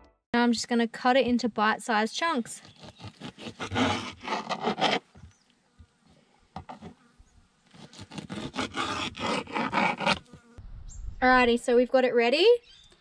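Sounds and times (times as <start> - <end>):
knife slicing on plastic board: 2.6 - 5.3, 7.7 - 10.5.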